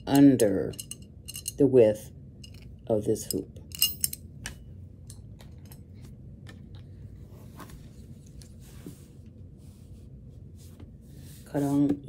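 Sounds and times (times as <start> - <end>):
low steady hum: 0.0 - 12.0
fabric rustling on tabletop: 7.1 - 12.0.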